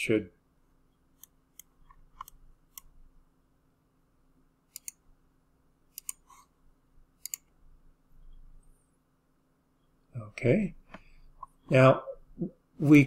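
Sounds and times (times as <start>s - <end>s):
computer mouse clicking: 1.2s - 2.9s, 4.7s - 5.0s, 5.9s - 6.5s, 7.2s - 7.6s.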